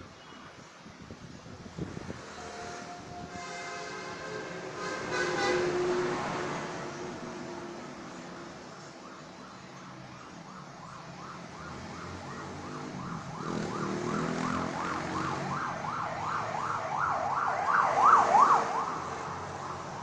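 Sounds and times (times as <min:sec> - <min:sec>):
road traffic engines: 0:00.0 - 0:20.0
ambulance siren yelping: 0:06.6 - 0:20.0.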